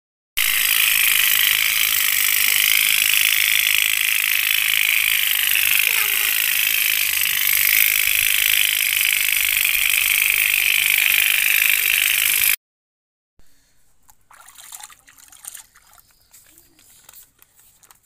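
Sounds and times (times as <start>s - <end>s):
toy steam boat engines buzzing: 0.4s - 12.6s.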